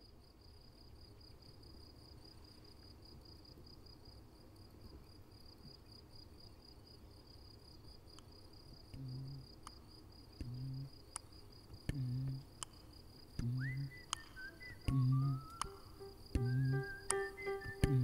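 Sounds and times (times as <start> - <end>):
cricket chirping: 0.0 - 18.0
sharp clicks: 13.4 - 18.0
rising whistle-like glide: 13.7 - 18.0
low two-note musical pulse: 14.9 - 18.0.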